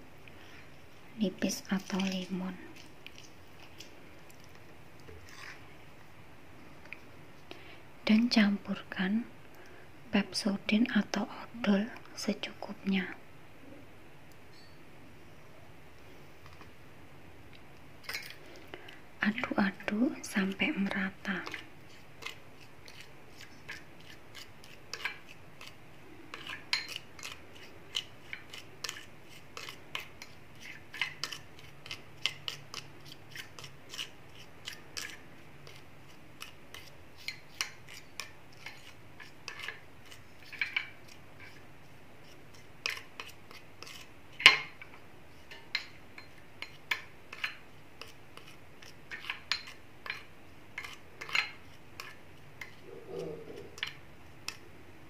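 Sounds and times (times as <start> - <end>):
spoon scraping ceramic bowl: 5.2 - 5.6, 20.8 - 35.8, 42.2 - 44.7.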